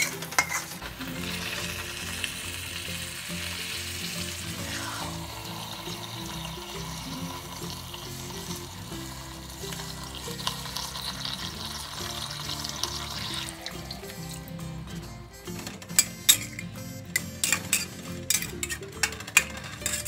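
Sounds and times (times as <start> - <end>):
paste sizzling in a wok: 0.0 - 15.0, 16.0 - 19.1
background music: 0.0 - 20.0
water pouring: 1.1 - 14.6.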